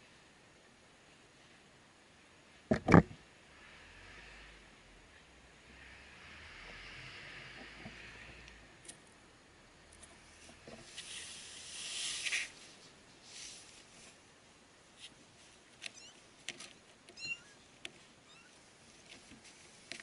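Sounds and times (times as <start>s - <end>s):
kittens squeaking: 15.8s - 16.3s, 17.1s - 18.6s.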